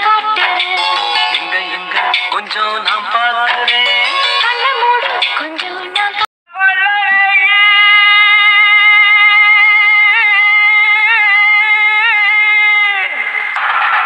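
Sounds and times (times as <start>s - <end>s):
song playing: 0.0s - 6.3s.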